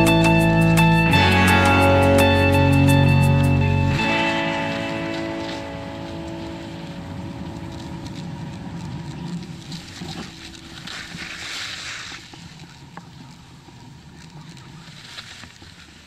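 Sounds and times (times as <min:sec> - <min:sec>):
skis scraping over packed snow: 0:04.1 - 0:16.0.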